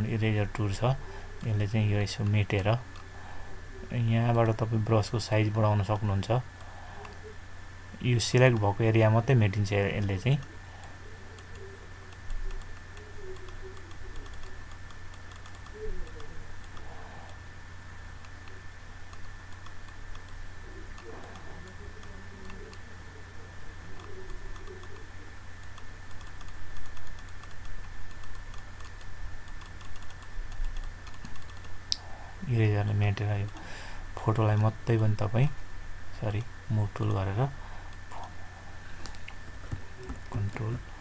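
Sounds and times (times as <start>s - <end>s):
low electrical hum: 0.0s - 41.0s
mouse and keyboard clicking: 11.3s - 17.4s, 18.2s - 22.8s, 23.9s - 31.8s.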